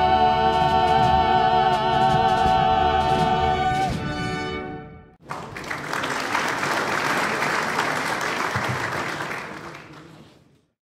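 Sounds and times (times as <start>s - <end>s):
congregation applauding: 5.2s - 10.7s.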